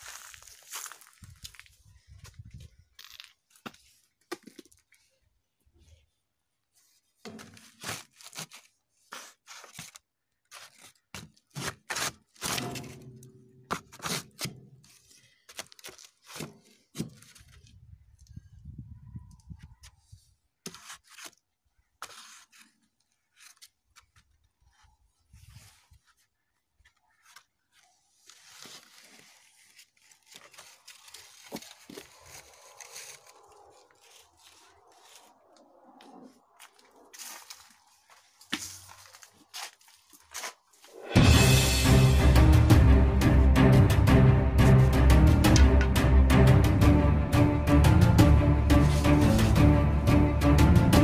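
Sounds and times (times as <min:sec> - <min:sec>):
close crackles and rustles: 0:22.1 - 0:41.0.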